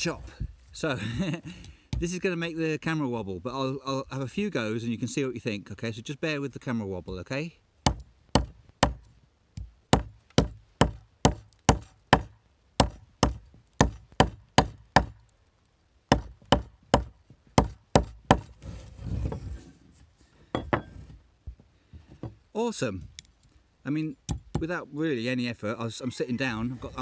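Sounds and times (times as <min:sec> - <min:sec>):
hatchet chopping branch: 0:07.9 - 0:09.0, 0:09.9 - 0:15.2.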